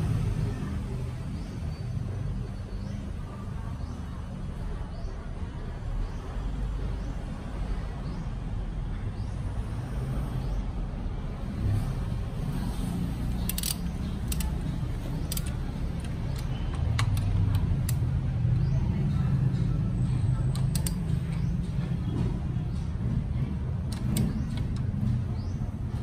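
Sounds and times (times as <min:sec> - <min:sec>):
torque wrench clicks: 0:13.3 - 0:18.2, 0:20.5 - 0:21.3, 0:23.9 - 0:24.9.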